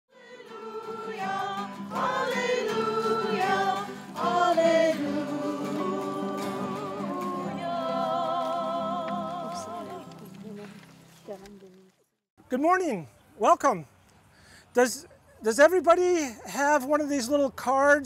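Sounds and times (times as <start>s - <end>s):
group of voices singing: 0.1s - 10.2s.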